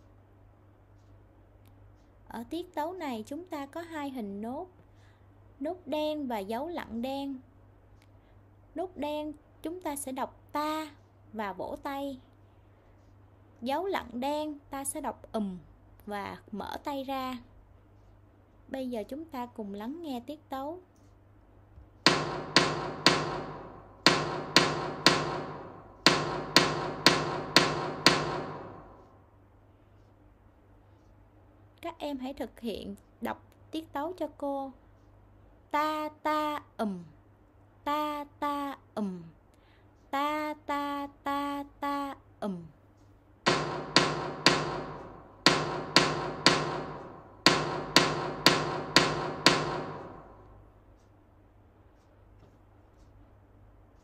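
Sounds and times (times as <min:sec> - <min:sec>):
sharp percussive strikes: 0:22.1 - 0:29.2, 0:43.5 - 0:50.5.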